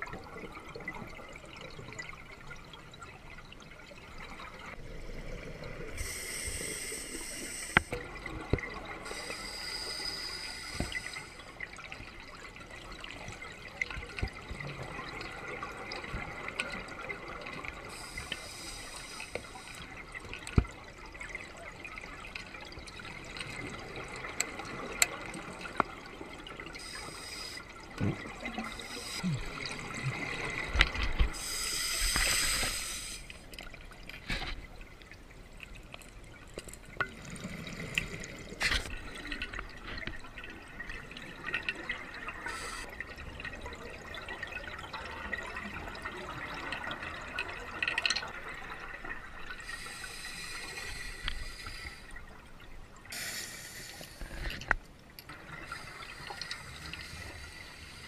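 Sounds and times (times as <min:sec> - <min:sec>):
water hiss: 0:05.9 - 0:08.0, 0:09.0 - 0:11.5, 0:17.9 - 0:20.0, 0:26.8 - 0:27.8, 0:28.5 - 0:29.8, 0:30.4 - 0:33.6, 0:42.3 - 0:42.9, 0:49.5 - 0:52.2, 0:53.1 - 0:54.7, 0:55.6 - 0:58.0.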